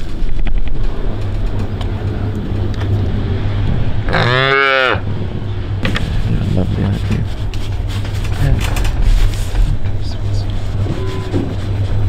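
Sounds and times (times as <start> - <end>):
steady low rumble: 0.0 - 12.0
calf mooing: 4.1 - 5.1, 10.8 - 11.6.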